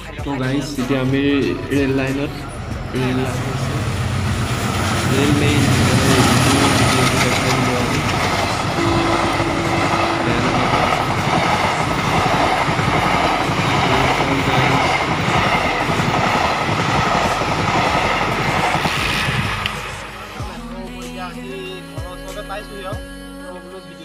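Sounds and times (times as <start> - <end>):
train wheels clattering on rails: 2.8 - 19.9.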